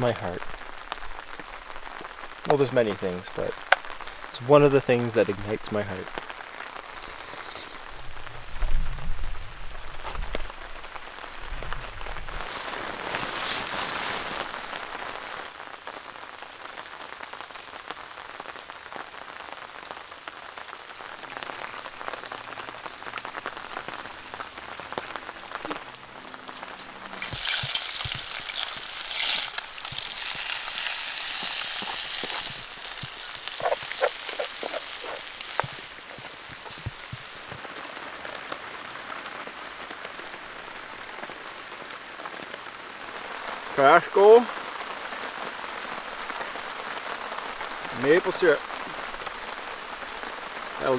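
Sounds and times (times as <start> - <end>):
steady rain falling: 0.0 - 50.9
eggs sizzling in a skillet: 26.6 - 37.6.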